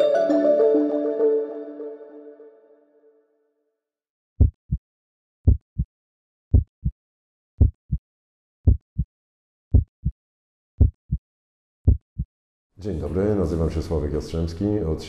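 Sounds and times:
heartbeat thumps: 4.4s - 4.8s, 5.5s - 5.9s, 6.5s - 7.0s, 7.6s - 8.0s, 8.6s - 9.1s, 9.7s - 10.2s, 10.8s - 11.2s, 11.8s - 12.3s.

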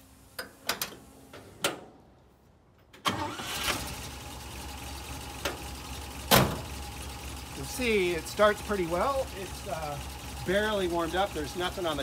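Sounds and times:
truck engine starting and idling: 2.9s - 12.0s.

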